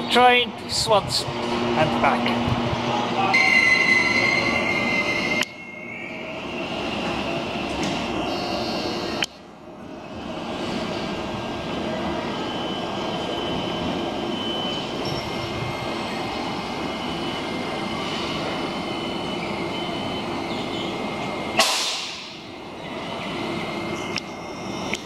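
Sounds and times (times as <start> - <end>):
electric train rumble: 0.0 - 25.0
thin high whines: 3.2 - 9.2.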